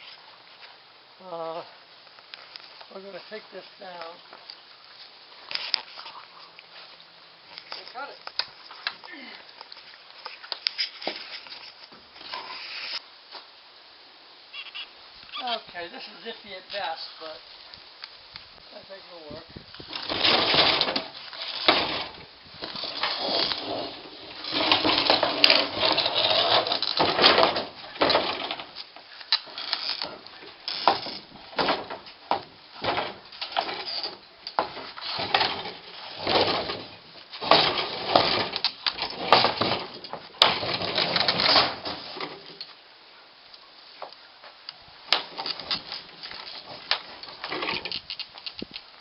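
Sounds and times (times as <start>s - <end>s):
hull scraping and knocking: 19.8s - 28.9s, 29.5s - 42.6s.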